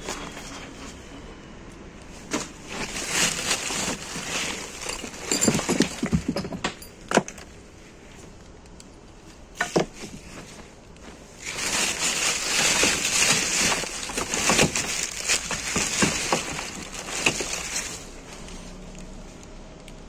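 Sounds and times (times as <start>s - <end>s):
plastic bags rustling: 2.1s - 6.9s, 9.3s - 19.1s
items knocking and clattering: 2.2s - 7.5s, 9.6s - 10.6s, 11.4s - 18.3s.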